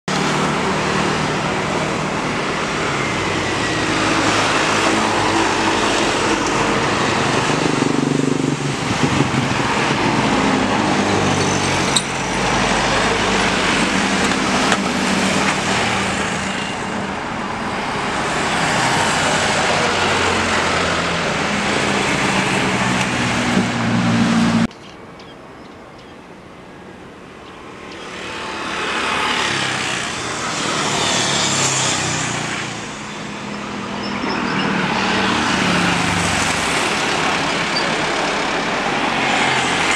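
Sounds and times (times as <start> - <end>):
jet engines running loudly: 0.1 - 23.8, 27.0 - 39.9.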